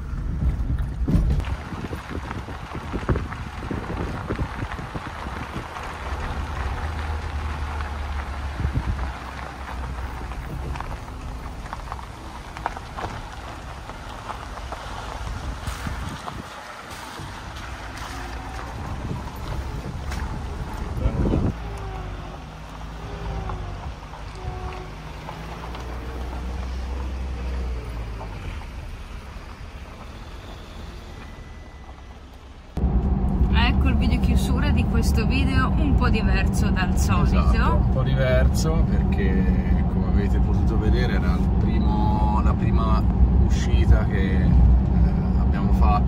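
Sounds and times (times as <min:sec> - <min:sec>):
low engine and road rumble: 0:00.0 - 0:46.0
tyres crackling over gravel: 0:01.4 - 0:34.0.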